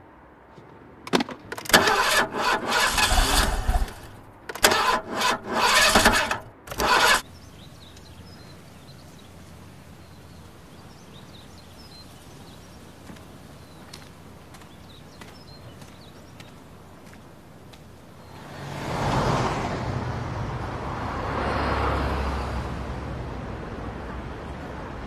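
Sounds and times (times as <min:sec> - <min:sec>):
car engine cranking: 0:01.5 - 0:17.1.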